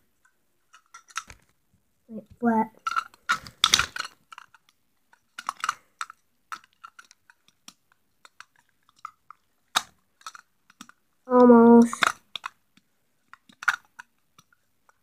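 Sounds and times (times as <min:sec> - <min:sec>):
plastic toy parts clicking: 0:00.2 - 0:01.5, 0:02.7 - 0:15.0.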